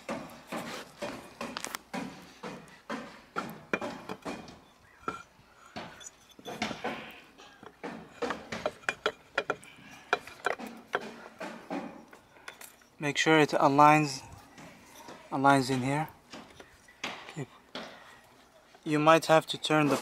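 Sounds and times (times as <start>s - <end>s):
metallic clinks and knocks: 3.6s - 13.0s.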